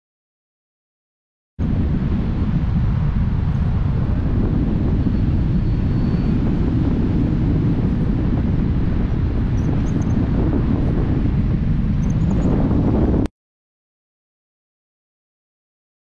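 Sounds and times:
wind buffeting microphone: 1.6 - 13.3.

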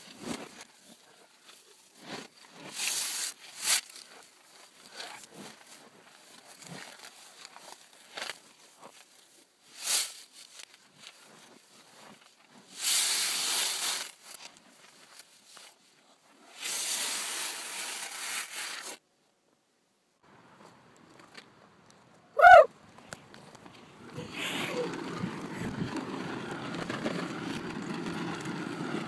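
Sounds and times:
reversed paper tearing: 16.6 - 19.0.

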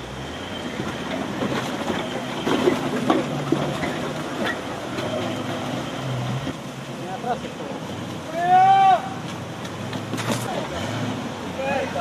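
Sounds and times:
vehicle engine humming: 0.0 - 12.0
knocks and clatter: 0.8 - 5.8.

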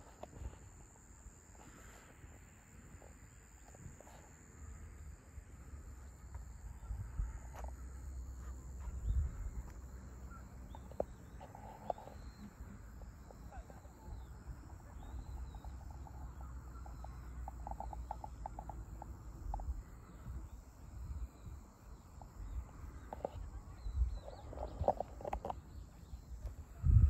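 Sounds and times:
wind noise on microphone: 6.7 - 7.7, 8.8 - 9.7, 17.6 - 27.0.

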